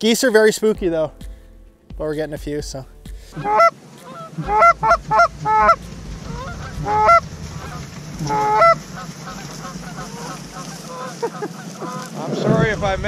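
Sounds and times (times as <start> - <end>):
goose honking and clucking: 3.4 - 12.3
low rumble: 4.4 - 13.0.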